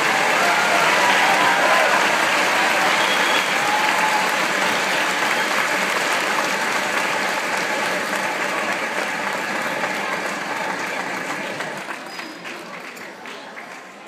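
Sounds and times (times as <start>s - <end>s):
audience applauding: 0.0s - 14.0s.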